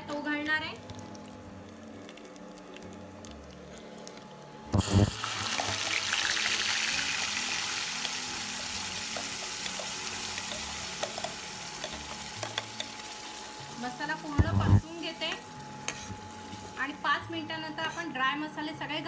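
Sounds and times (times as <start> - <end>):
paste sizzling in hot oil: 4.8 - 14.1.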